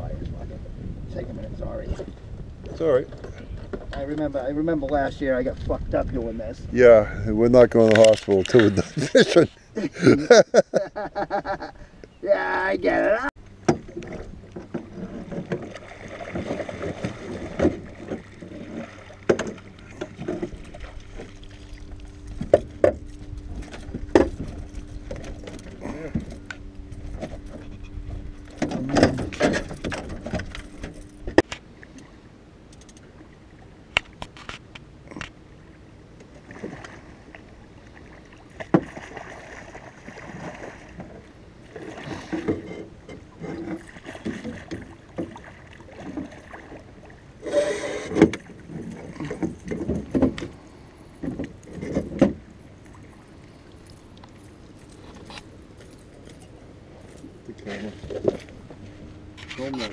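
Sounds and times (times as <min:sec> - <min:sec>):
water splashing: 0:12.3 - 0:32.2, 0:36.3 - 0:59.9.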